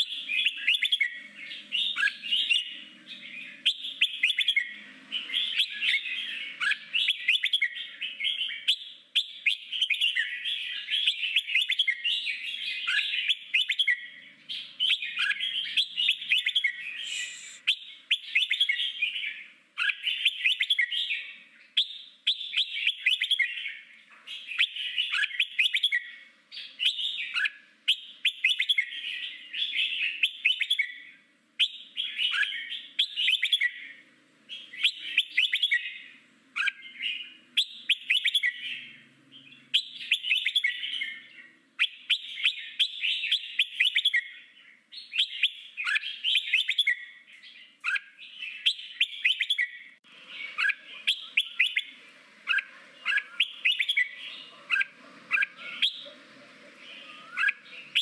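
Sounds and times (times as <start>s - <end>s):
bulbul warbling song: 15.0s - 18.8s.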